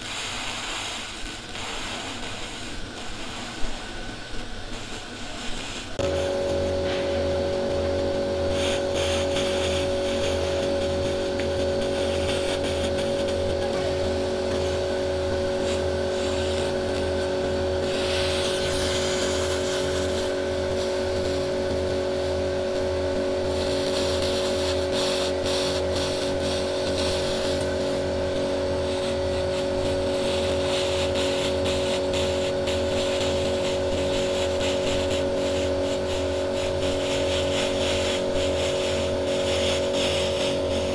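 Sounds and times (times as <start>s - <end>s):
laser machine buzzing hum: 0.0s - 40.9s
laser pulses crackling: 8.5s - 21.5s.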